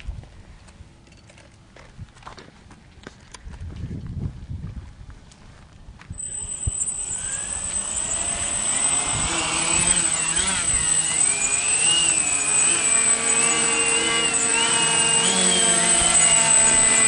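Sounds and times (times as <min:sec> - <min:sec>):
drone propellers whining: 0:06.2 - 0:17.0.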